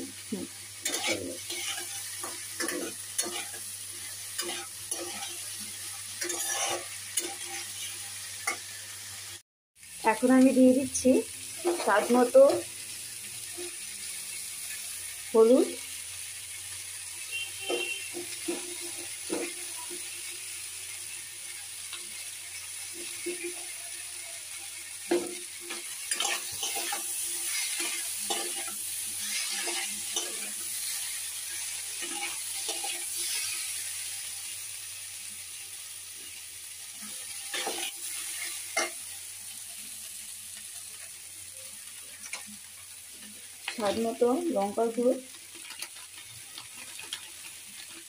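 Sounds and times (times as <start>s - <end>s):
vegetables sizzling in oil: 0.0s - 48.0s
spatula scraping pan: 0.8s - 8.7s, 17.6s - 20.1s, 24.5s - 33.8s, 37.3s - 39.0s.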